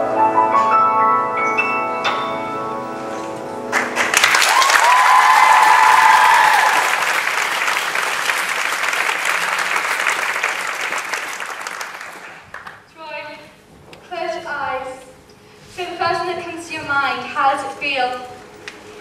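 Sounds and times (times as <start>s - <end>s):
grand piano notes: 0.0s - 4.3s
audience applause: 3.7s - 12.9s
high whoop: 4.3s - 7.0s.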